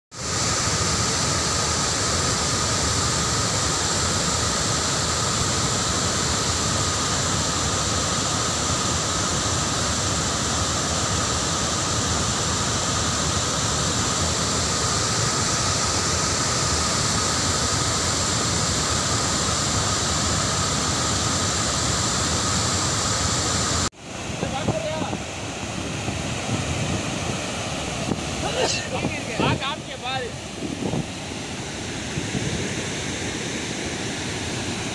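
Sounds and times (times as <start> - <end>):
water rushing over spillway: 0.1 - 34.9.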